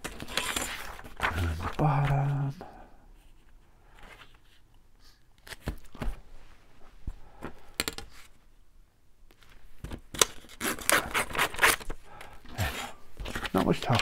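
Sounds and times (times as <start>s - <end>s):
taps and rustles of paper: 0.0s - 2.2s, 5.4s - 6.2s, 9.3s - 12.0s, 13.2s - 14.0s.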